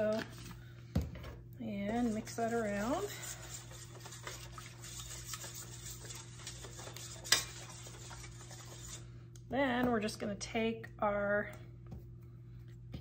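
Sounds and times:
metal spoon scraping pan: 1.9 - 9.0.

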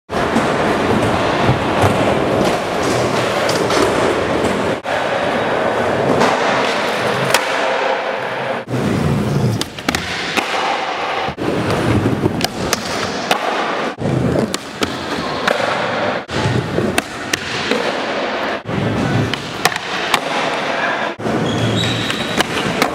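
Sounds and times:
skateboard wheels rolling on concrete: 11.0 - 13.1.

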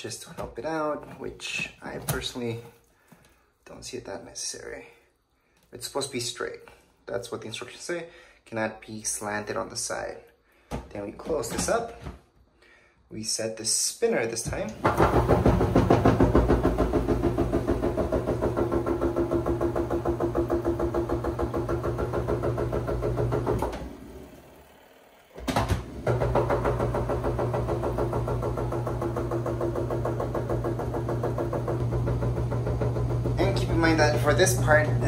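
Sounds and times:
spin-dryer motor hum: 14.8 - 35.0.

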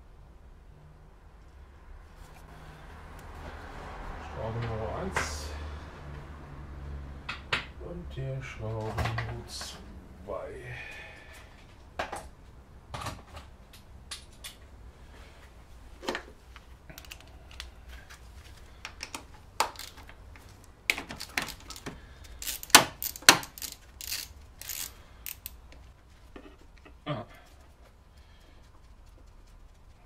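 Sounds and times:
hand tools clicking on engine metal: 18.8 - 25.8.

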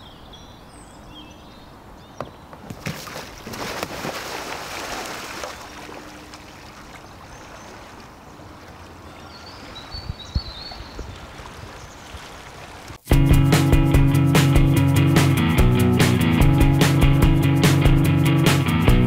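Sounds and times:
water settling in wake: 2.2 - 13.1
kayak splashing into river: 2.6 - 13.1.

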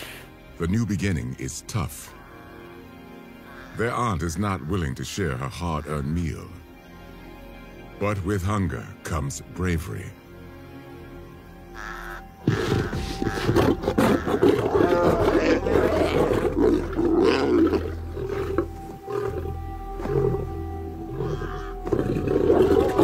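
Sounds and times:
lions snarling and growling: 11.8 - 23.0.

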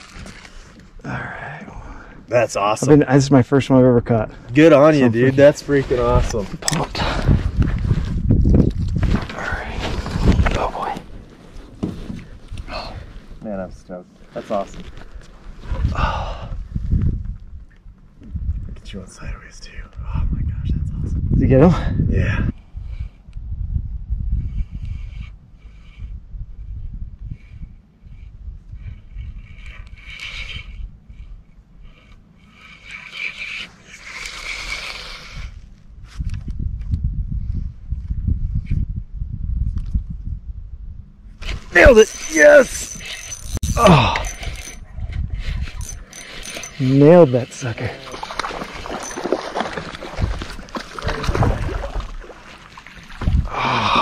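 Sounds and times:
fishing reel scratchy whirr: 28.8 - 35.7, 41.4 - 51.4
fish splashing at the surface: 48.1 - 53.5.

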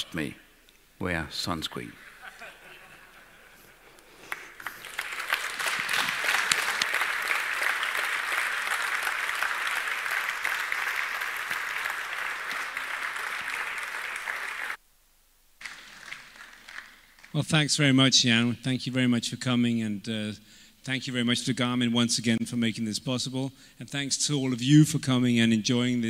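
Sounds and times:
audience applauding: 4.2 - 14.8, 15.6 - 17.4.

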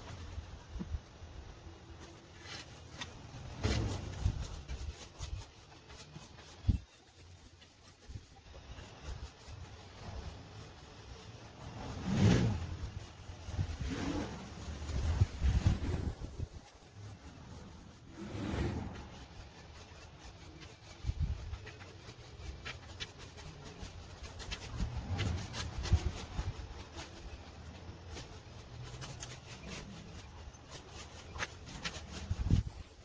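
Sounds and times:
leaf rake scraping: 1.6 - 33.0
low rumbling: 11.4 - 19.4.

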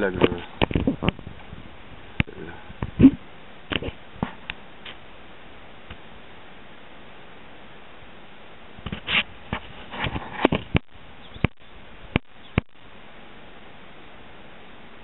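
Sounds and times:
faint steady hiss: 0.0 - 15.0
brief rustle: 8.9 - 10.8.

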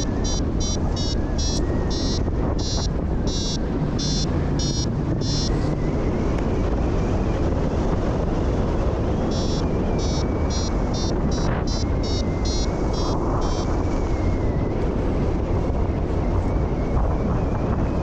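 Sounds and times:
variometer beeping: 0.0 - 7.2, 9.1 - 14.6
wind rushing over microphone: 0.0 - 18.0.

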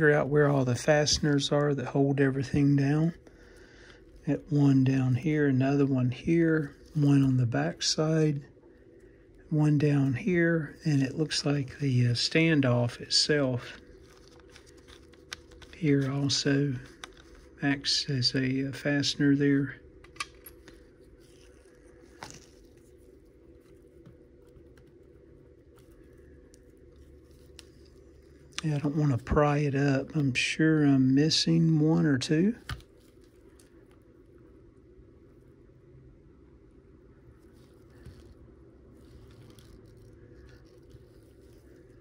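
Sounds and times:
low steady hum: 0.0 - 42.0
hands handling plastic case: 13.7 - 17.5.

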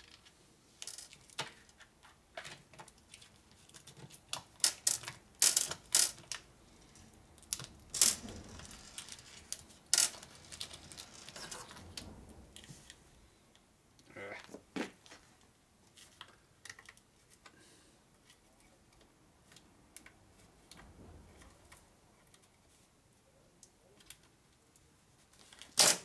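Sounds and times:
clicks of washers popping from blister packs: 25.6 - 26.0.

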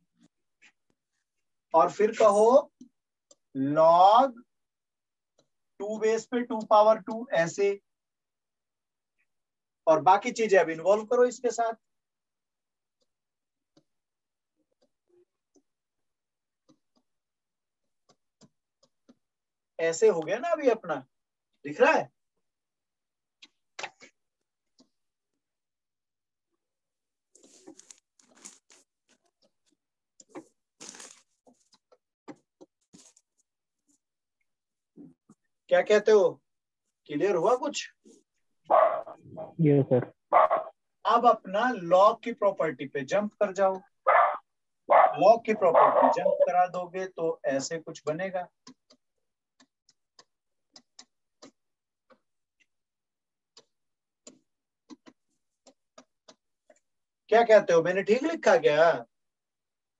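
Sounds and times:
pen scratching and tapping screen: 12.8 - 19.4, 27.3 - 34.1, 47.6 - 52.8, 53.5 - 56.9.

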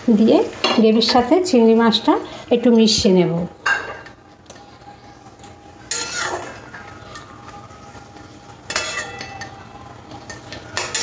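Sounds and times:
metal spatula scraping pan: 5.9 - 7.4, 8.7 - 9.5.

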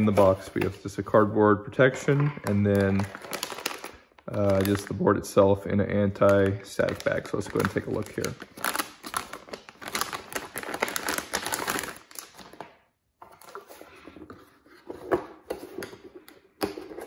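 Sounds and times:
anti-static bag crinkling: 2.4 - 5.0, 6.2 - 12.6.

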